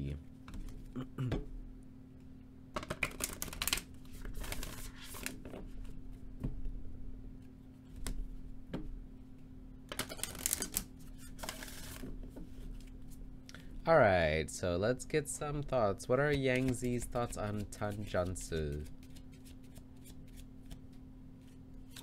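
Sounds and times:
cards riffle shuffling: 3.1 - 5.6, 10.0 - 12.0, 16.3 - 22.0.

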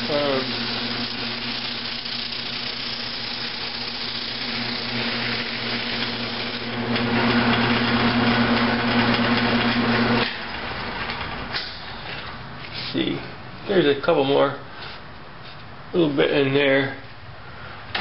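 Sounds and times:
sandpaper hissing on spinning wood: 0.0 - 6.8
lathe motor hum: 0.0 - 11.5.

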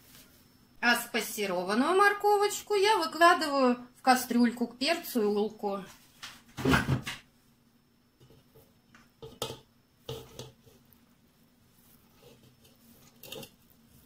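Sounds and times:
metal scraping metal pan: 9.2 - 10.8, 12.1 - 13.7.

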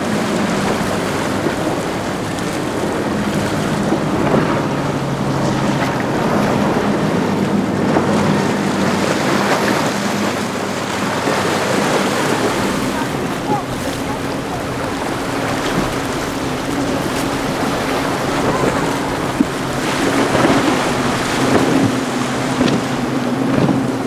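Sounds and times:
hull rushing through rough water: 0.0 - 24.0
outboard engines running: 0.0 - 24.0
wind buffeting the microphone: 0.0 - 24.0.

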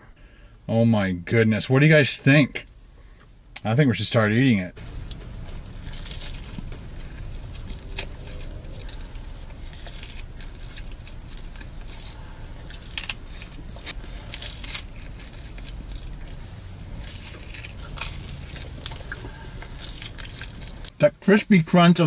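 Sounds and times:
low hum: 4.2 - 21.1
person chewing crunchy food: 4.8 - 21.0.

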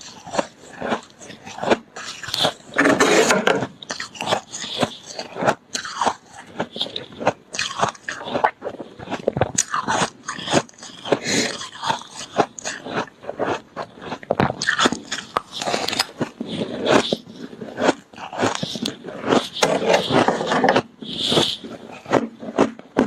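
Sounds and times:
ice crunching while chewing: 0.0 - 23.0.

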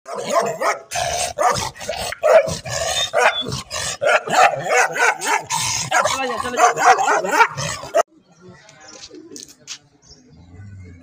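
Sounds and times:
dog barking rapidly: 0.1 - 8.0.

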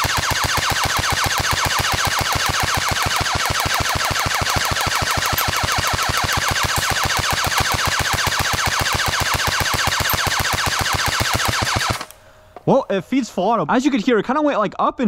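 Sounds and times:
airsoft rifle full auto burst: 0.0 - 12.2.

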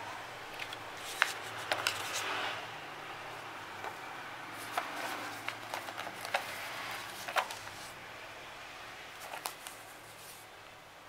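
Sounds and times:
paper and tissue crinkling: 0.6 - 2.3, 4.6 - 8.0, 9.2 - 10.5.

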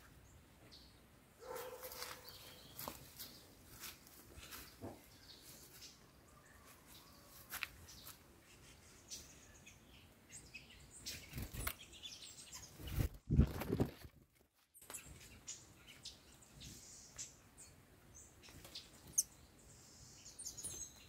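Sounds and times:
songbirds chirping: 0.0 - 21.0
bird wing flutter: 12.8 - 14.2.

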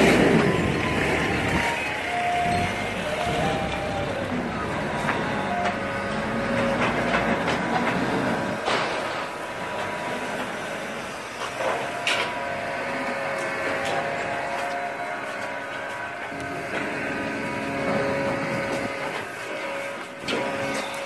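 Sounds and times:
industrial machine hum: 0.0 - 21.0
sharp knocks and clatters: 5.0 - 10.0.

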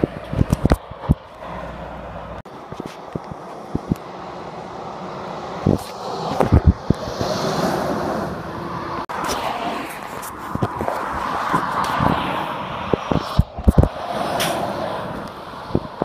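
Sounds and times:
wind thumps on microphone: 0.0 - 1.4, 2.7 - 4.0, 5.6 - 8.4, 9.0 - 16.0
traffic noise: 0.0 - 16.0
lorry passing close by: 0.9 - 16.0.

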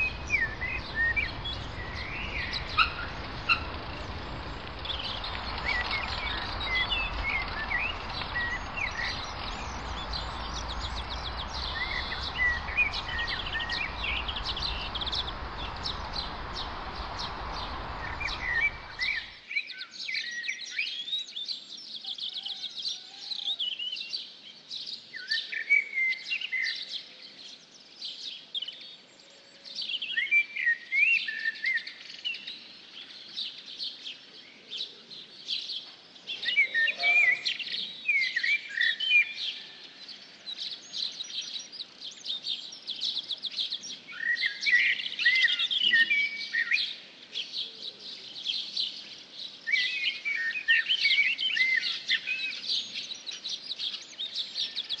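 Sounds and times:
steady rushing noise: 0.0 - 19.5
songbirds chirping and singing: 0.0 - 55.0.

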